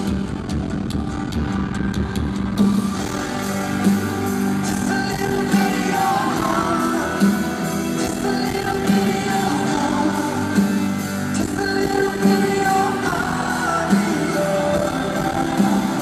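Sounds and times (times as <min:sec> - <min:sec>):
live backing band: 0:00.0 - 0:16.0
man singing: 0:04.5 - 0:16.0.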